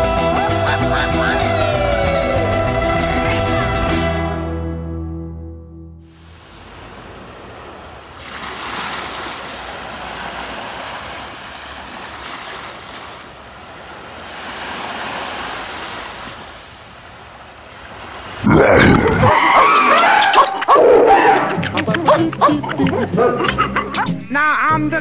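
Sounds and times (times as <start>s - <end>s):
loud music: 0.0s - 5.2s
waves washing onto beach: 6.1s - 18.5s.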